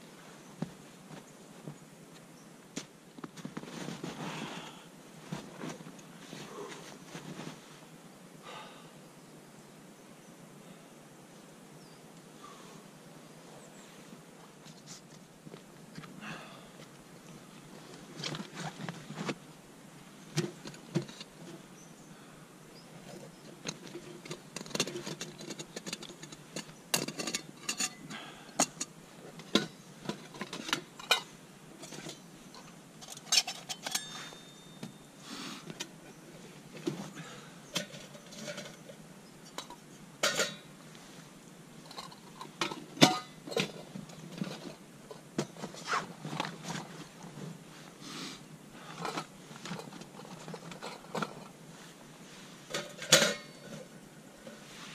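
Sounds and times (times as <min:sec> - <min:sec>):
metal cookware clinking: 0:33.1 - 0:34.7, 0:39.5 - 0:40.7, 0:41.9 - 0:43.3, 0:52.8 - 0:53.8
short metallic ring: 0:33.7 - 0:35.0.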